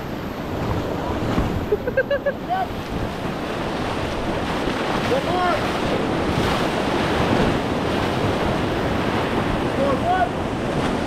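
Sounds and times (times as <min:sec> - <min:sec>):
whitewater rapids rushing: 0:00.0 - 0:11.0
wind buffeting microphone: 0:00.0 - 0:11.0.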